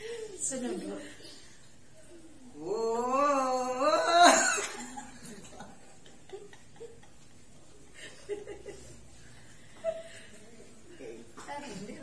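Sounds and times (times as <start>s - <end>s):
wavering vocal note: 2.6s - 4.5s
soft scattered laughter: 4.2s - 11.3s.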